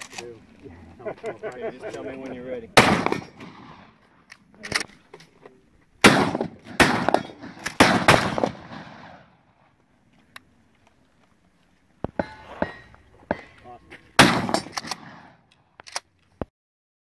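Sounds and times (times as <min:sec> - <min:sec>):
shotgun blasts with echo: 0:02.8 - 0:04.0, 0:06.0 - 0:09.4, 0:14.2 - 0:15.4.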